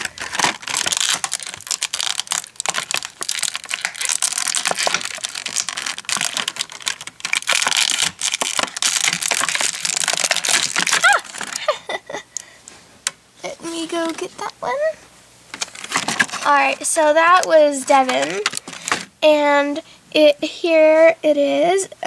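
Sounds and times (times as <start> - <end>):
plastic packaging crinkling: 0.0 - 11.9, 15.5 - 19.1.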